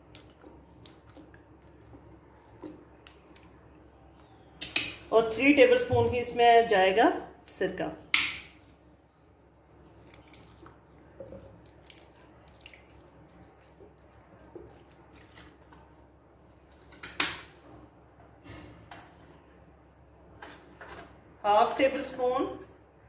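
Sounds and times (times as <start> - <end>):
liquid dripping into blender jug: 9.8 - 14.8.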